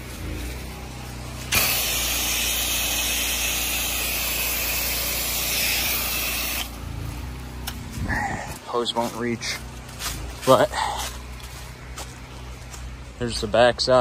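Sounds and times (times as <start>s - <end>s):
spray wand hissing: 1.5s - 6.8s.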